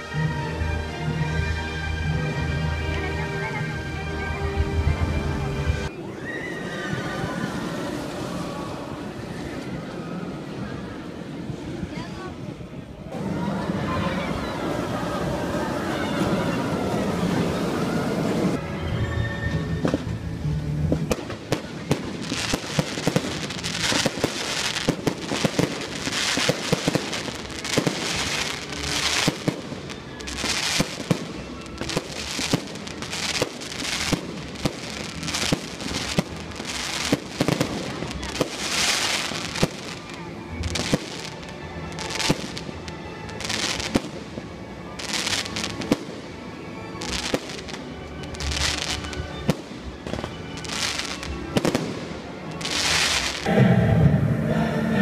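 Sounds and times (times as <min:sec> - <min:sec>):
music soundtrack: 0:00.0 - 0:06.0, 0:13.0 - 0:55.0
fireworks crackling and hissing: 0:13.8 - 0:18.6, 0:19.6 - 0:53.5
fireworks launching and bursting: 0:20.8 - 0:44.4, 0:47.0 - 0:53.6.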